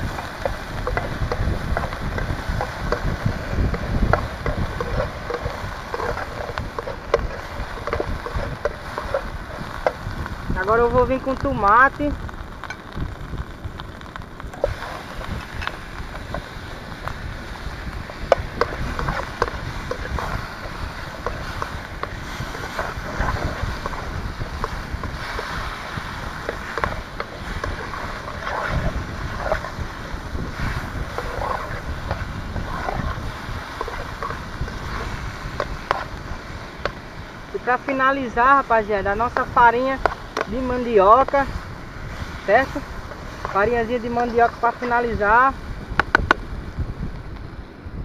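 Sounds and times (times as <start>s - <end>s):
spatula scraping a pan: 0.0s - 10.0s, 18.2s - 36.2s
surf: 0.0s - 48.0s
wind buffeting microphone: 0.0s - 48.0s.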